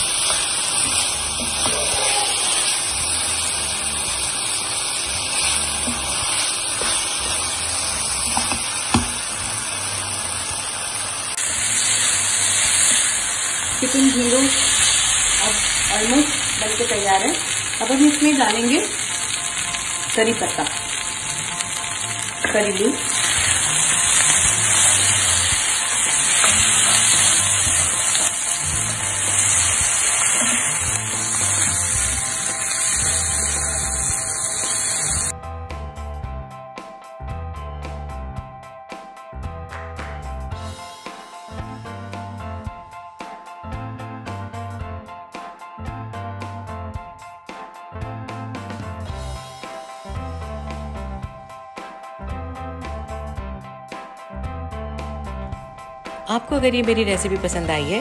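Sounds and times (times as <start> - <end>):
chicken sizzling in a pan: 0.0 - 35.3
background music: 0.0 - 58.0.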